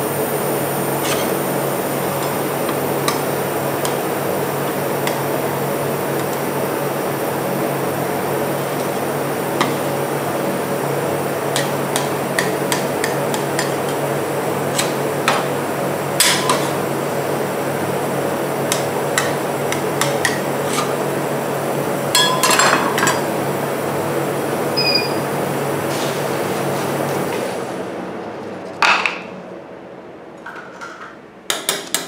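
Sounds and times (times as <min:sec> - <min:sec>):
steady hum: 0:00.0 - 0:25.8
metal spatulas scraping steel plate: 0:01.0 - 0:01.4.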